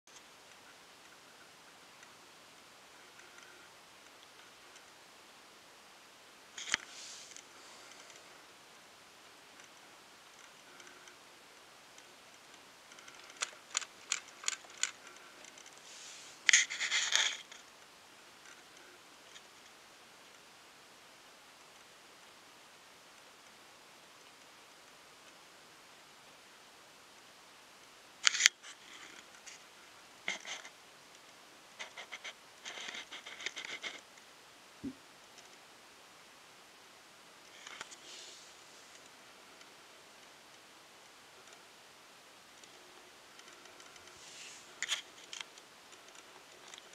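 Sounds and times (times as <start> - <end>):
camera handling clicks and scratches: 28.3 - 28.6.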